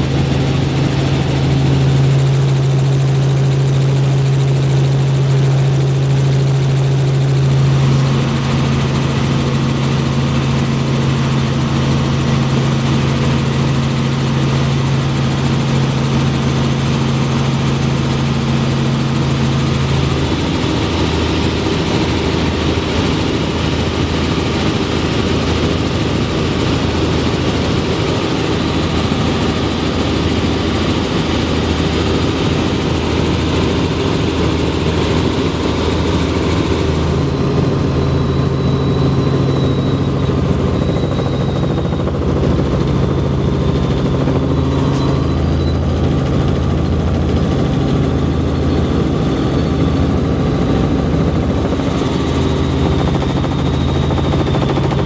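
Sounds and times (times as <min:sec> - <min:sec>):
helicopter rotor and engine drone: 0:00.0 - 0:55.0.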